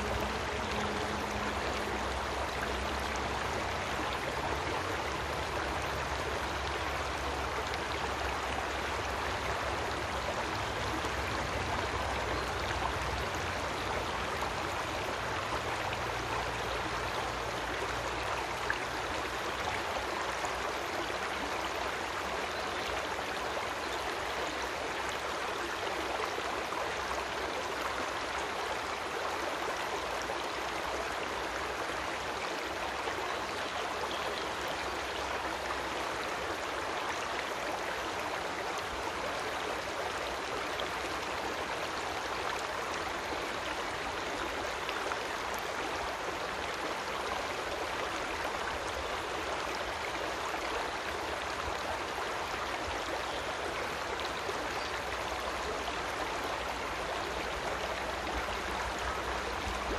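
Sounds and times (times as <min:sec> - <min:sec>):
creek water flowing: 0:00.0 - 0:59.9.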